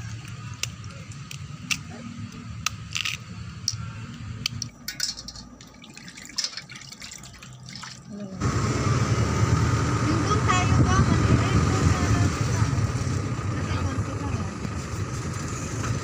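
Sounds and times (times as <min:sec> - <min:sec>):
moving vehicle rumble: 0:00.0 - 0:16.0
water dripping in metal basin: 0:04.5 - 0:08.3.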